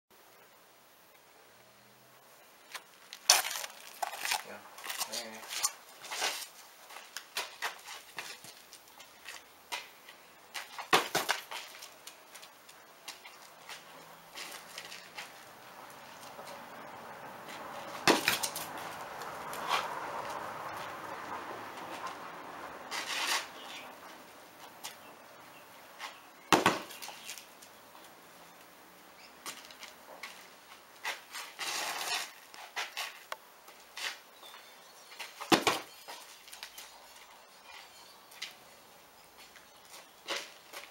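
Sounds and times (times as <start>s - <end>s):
soft taps and scuffs: 3.9s - 16.6s, 17.4s - 21.0s, 25.9s - 26.2s, 29.4s - 38.6s
soccer ball kick thuds: 10.9s - 11.6s, 17.5s - 19.9s, 26.5s - 27.2s, 35.4s - 35.9s
knocks and scrapes of ball: 22.9s - 23.5s, 31.0s - 33.2s.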